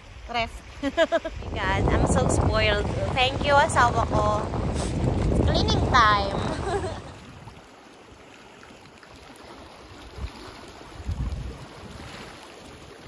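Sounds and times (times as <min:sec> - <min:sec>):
wind buffeting microphone: 0:00.0 - 0:07.7, 0:09.9 - 0:13.0
wind: 0:00.0 - 0:13.0
waves washing against rocks: 0:00.1 - 0:07.6, 0:09.3 - 0:13.0.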